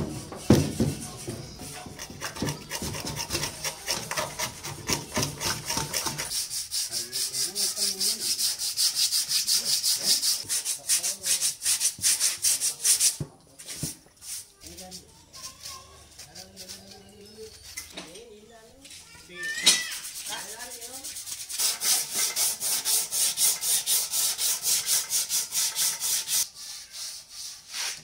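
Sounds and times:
hand sanding metal: 0.0 - 13.2, 19.9 - 28.0.

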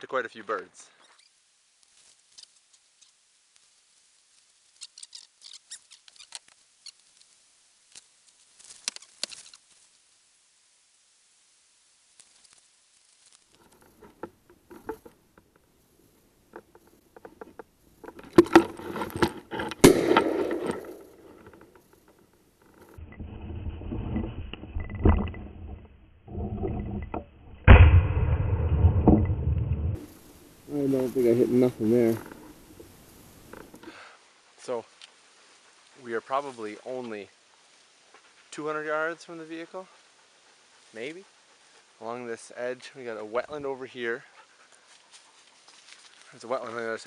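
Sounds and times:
rustling brush: 1.8 - 10.2, 12.0 - 15.2, 30.0 - 47.0
shotgun shot: 19.8 - 20.9, 27.7 - 29.2.

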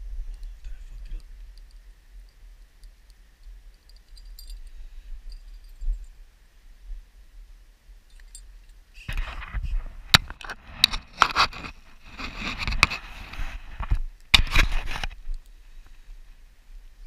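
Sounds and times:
scraping close to microphone: 9.0 - 15.3.

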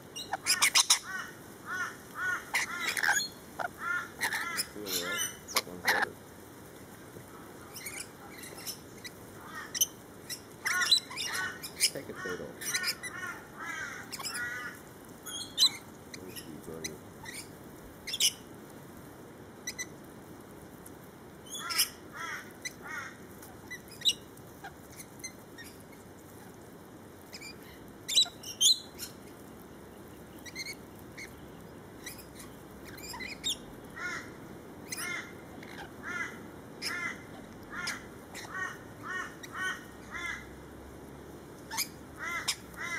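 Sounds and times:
parrots screeching and chattering: 0.2 - 6.1, 7.7 - 17.5, 18.1 - 18.4, 21.5 - 26.5, 27.3 - 29.3, 30.4 - 31.4, 32.0 - 40.5, 41.7 - 42.9.

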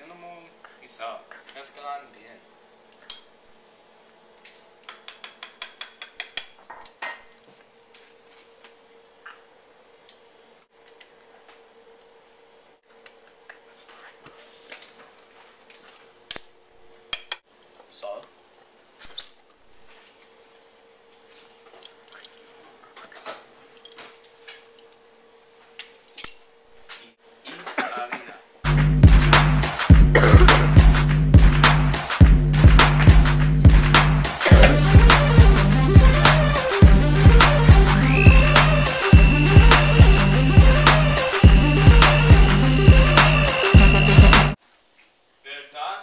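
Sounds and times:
utensils clinking against bowl: 4.9 - 7.0
loud electronic music: 28.7 - 44.6.

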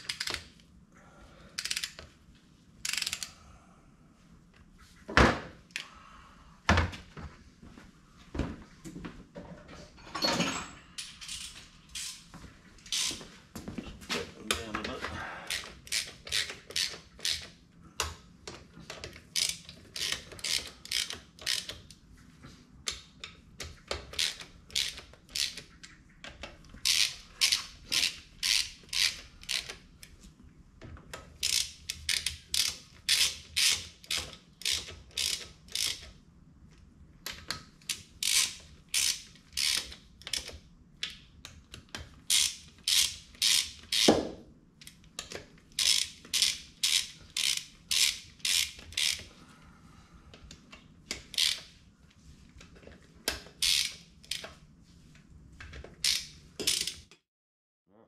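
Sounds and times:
ratchet wrench clicking: 0.0 - 0.4, 1.6 - 2.0, 2.8 - 3.3, 15.5 - 17.6, 19.4 - 21.8, 24.1 - 25.6, 26.8 - 29.8, 31.4 - 36.1, 37.9 - 40.5, 42.3 - 44.1, 45.8 - 49.3, 51.1 - 51.7, 53.6 - 54.5, 56.0 - 57.2.

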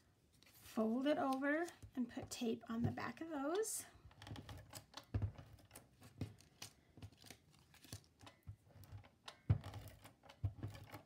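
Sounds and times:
paper rustling: 5.4 - 8.9.

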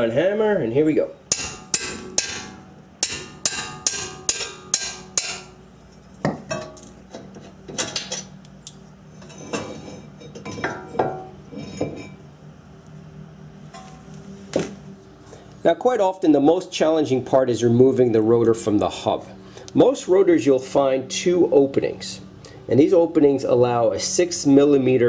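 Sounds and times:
hammer clanging on wrench: 1.3 - 5.5.

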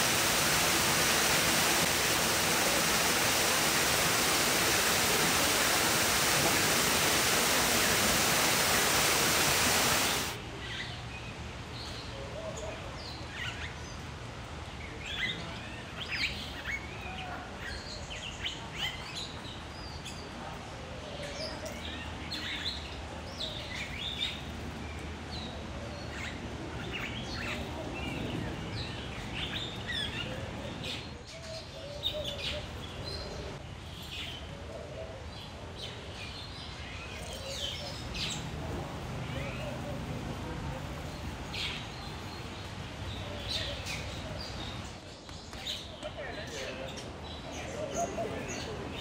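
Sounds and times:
waterfall rushing: 0.0 - 10.4.

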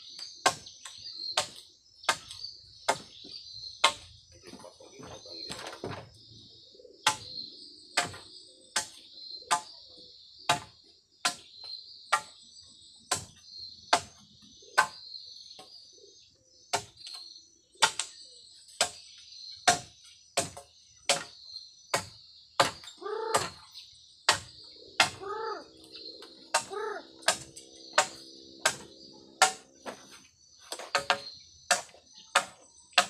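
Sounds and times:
bird calling: 0.0 - 10.2, 22.6 - 33.0
high buzz of insects: 0.0 - 33.0
machete chopping ground: 7.1 - 7.4, 8.0 - 9.7, 16.7 - 17.2, 17.8 - 18.2, 19.7 - 23.7, 24.3 - 25.3, 26.5 - 33.0.

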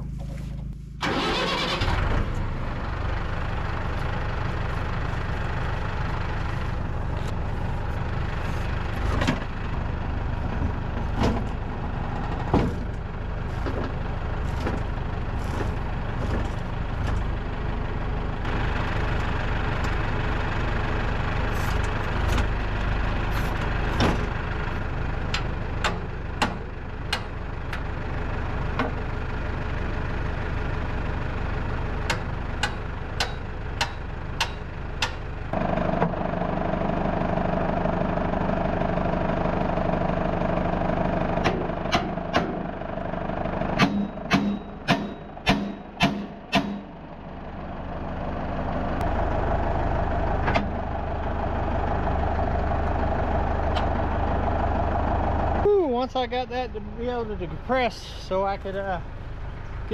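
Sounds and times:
tractor engine running: 0.0 - 59.9
sharp knocks and clanks: 12.2 - 13.0, 25.3 - 27.4, 32.1 - 35.2, 43.8 - 47.0.

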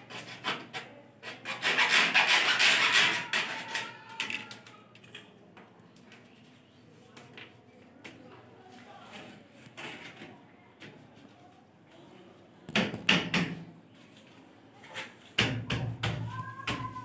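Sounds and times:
hacksaw sawing plastic pipe: 0.0 - 3.8.

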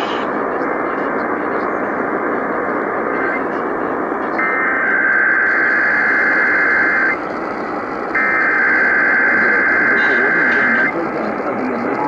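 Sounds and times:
radio static: 0.0 - 12.0
screechy digital alert tones: 8.2 - 10.9.

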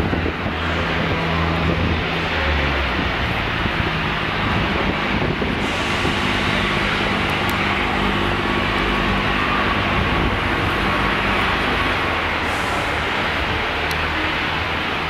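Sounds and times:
steam locomotive rumble: 0.0 - 15.0
loud hiss of steam: 4.4 - 15.0.

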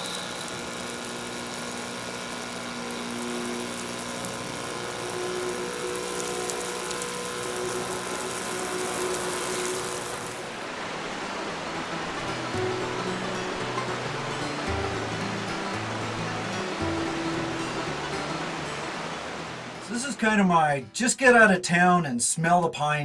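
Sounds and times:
water spray hissing: 0.0 - 10.6
electric pump humming: 0.0 - 20.4.

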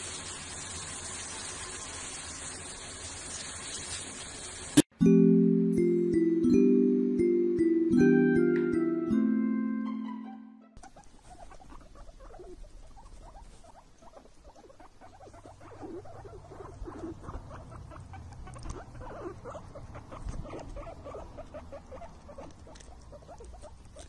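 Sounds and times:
young animals squeaking: 10.8 - 24.0.

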